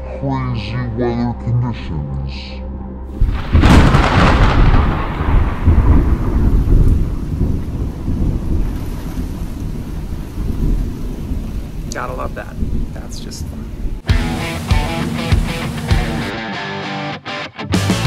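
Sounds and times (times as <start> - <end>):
thunderclap with low rumble: 3.1 - 14.1.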